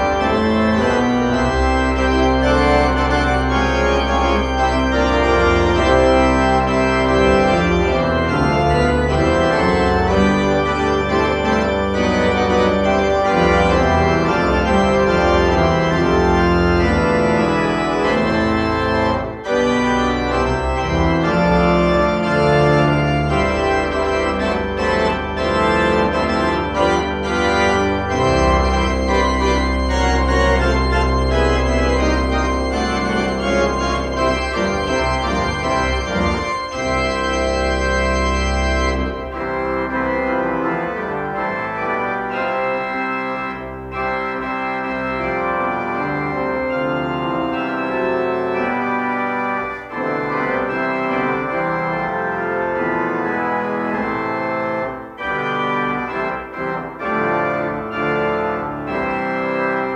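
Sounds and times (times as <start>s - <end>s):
deep organ pedal notes: 0.0s - 59.9s
pipe organ chords: 0.0s - 59.9s.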